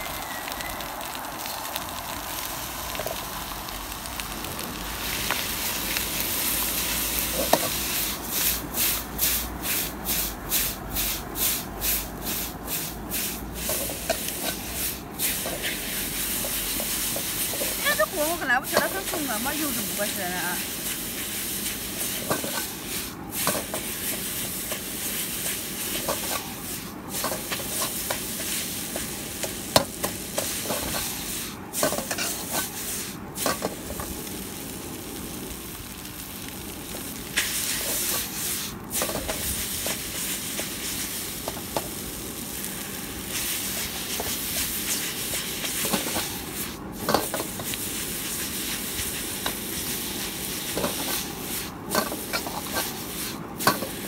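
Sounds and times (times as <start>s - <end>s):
noodles sizzling in a wok: 0.0s - 54.0s
utensils scraping and clanking pan: 13.6s - 20.1s, 22.0s - 26.5s, 27.2s - 31.2s, 31.8s - 32.8s, 37.4s - 40.7s, 47.0s - 47.8s, 50.6s - 54.0s.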